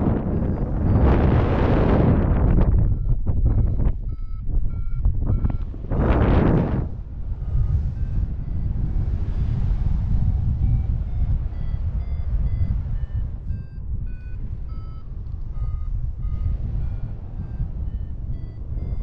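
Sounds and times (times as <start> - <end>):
wind buffeting microphone: 0.0 - 19.0
faint short beeps: 2.5 - 6.2, 10.1 - 19.0.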